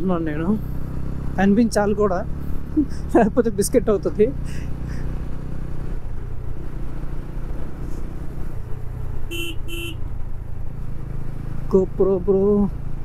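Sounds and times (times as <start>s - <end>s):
motorcycle engine running: 0.0s - 13.0s
horn beeps: 9.3s - 10.0s.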